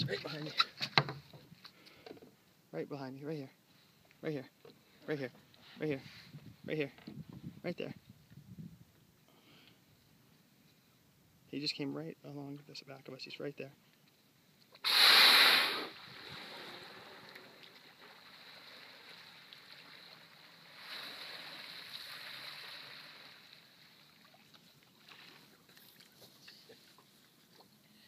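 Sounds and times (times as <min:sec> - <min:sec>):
wind: 0:00.0 - 0:28.0
water lapping: 0:15.9 - 0:28.0.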